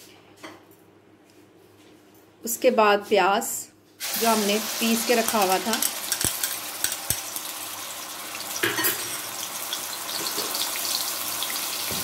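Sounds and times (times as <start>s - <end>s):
onion paste sizzling in oil: 4.0s - 12.0s.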